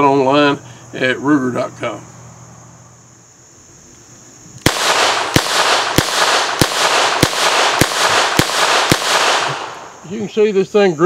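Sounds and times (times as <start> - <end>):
revolver shots echoing: 4.6 - 10.0.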